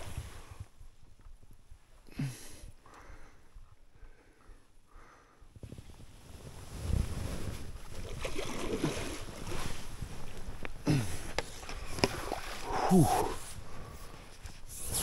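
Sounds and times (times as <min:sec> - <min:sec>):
water splashing and sloshing: 0:07.0 - 0:14.0
man breathing hard: 0:12.6 - 0:14.3.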